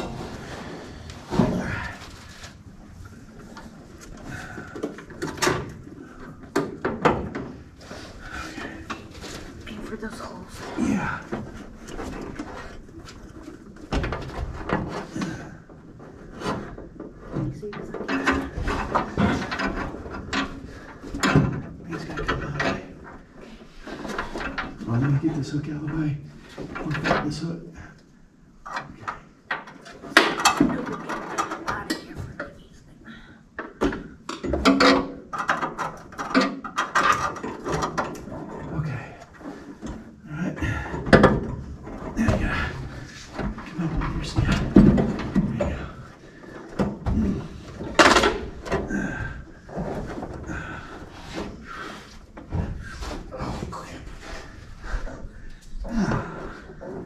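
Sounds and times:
tools and parts knocking and scraping: 0.0s - 25.2s, 26.4s - 32.6s, 33.5s - 40.2s, 40.8s - 57.0s
car parts and tools rattling: 33.5s - 38.7s, 40.9s - 57.0s.

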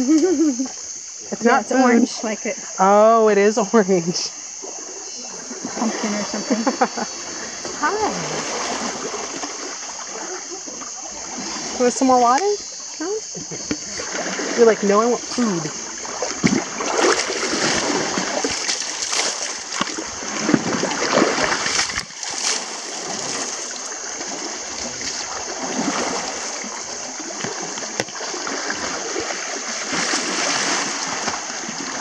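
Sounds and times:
water splashing around wading legs: 3.4s - 32.0s
flowing river rushing: 7.1s - 12.5s, 13.9s - 32.0s.

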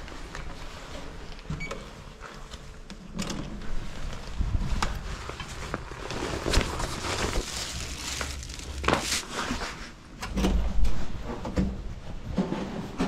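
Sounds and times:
clothing rustling on microphone: 3.6s - 10.1s.

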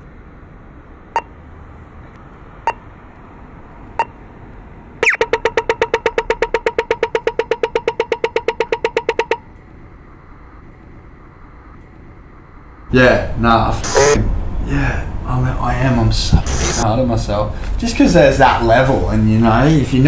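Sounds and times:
crossing signal locator ticks: 1.1s - 1.4s, 2.6s - 2.9s, 3.9s - 4.2s, 5.0s - 9.8s, 16.4s - 16.8s
rapid crossing signal ticking: 1.1s - 1.4s, 2.6s - 2.9s, 3.9s - 4.3s, 5.0s - 13.0s, 13.8s - 14.2s, 16.2s - 16.8s.

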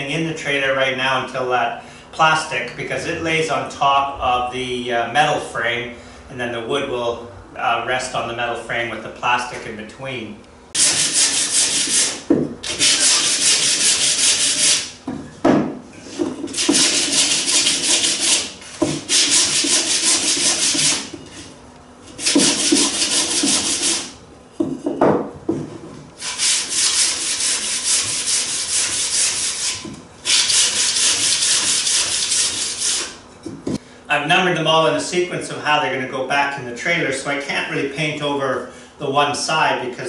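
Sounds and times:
sandpaper rasping on wood: 10.8s - 14.9s, 16.5s - 21.1s, 22.2s - 24.2s, 26.2s - 33.2s.

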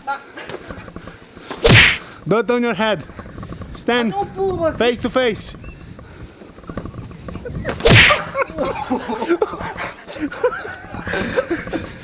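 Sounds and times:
boxing glove punch smack: 1.6s - 2.0s, 7.8s - 8.2s
voices: 1.7s - 12.0s.

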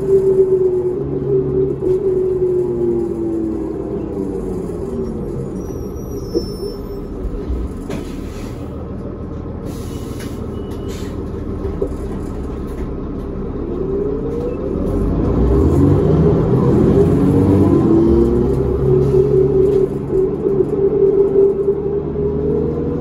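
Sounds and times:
bus engine and transmission accelerating: 0.0s - 23.0s
bus engine idling: 0.0s - 23.0s
air brake click and hiss: 7.9s - 8.8s, 9.6s - 11.3s.

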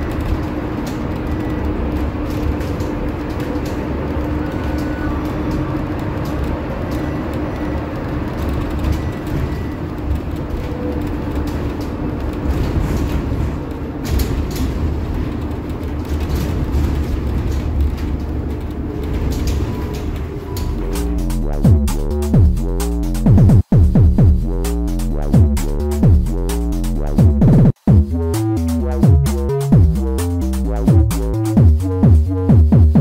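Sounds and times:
bus road rumble and hum: 0.0s - 23.3s.

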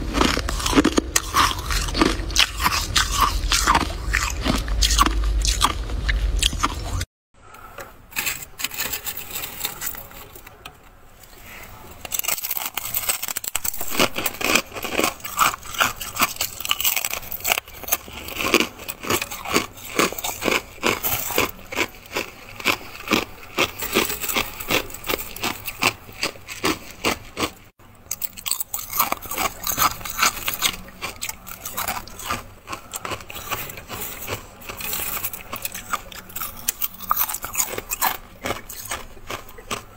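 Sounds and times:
hand scraping frost: 8.1s - 10.6s.

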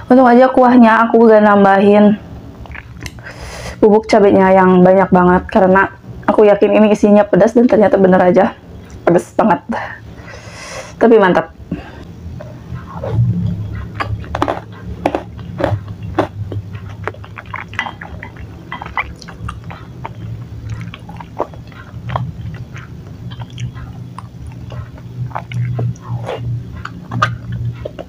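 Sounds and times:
wet chewing mouth clicks: 2.6s - 3.3s, 12.3s - 28.0s.

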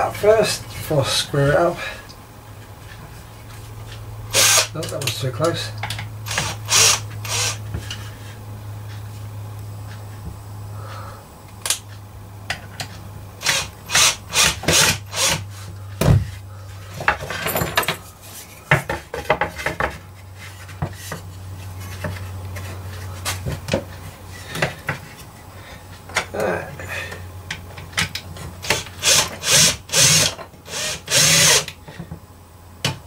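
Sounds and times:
steady low hum: 0.0s - 33.0s
wood knocking and rubbing on wood: 18.7s - 20.0s.

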